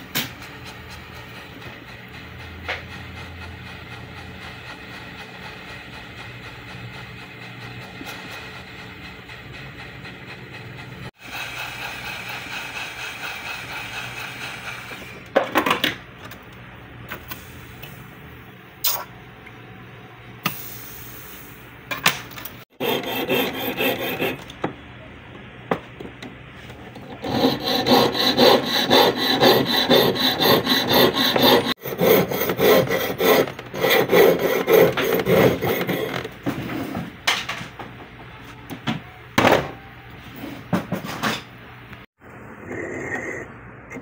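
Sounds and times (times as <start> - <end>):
saw blade cutting metal: 11.2 - 15.2, 22.7 - 24.5, 27.0 - 36.3.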